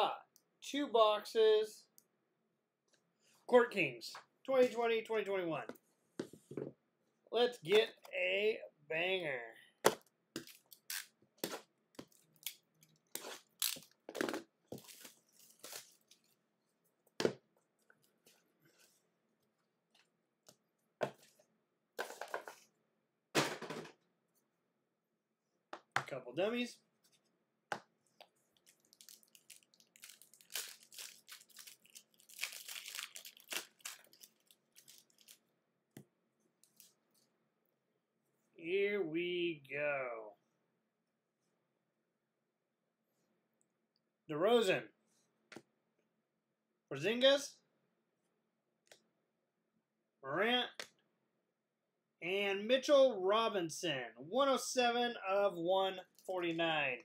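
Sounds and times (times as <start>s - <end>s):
plastic shrink-wrap tearing: 28.7s - 35.4s.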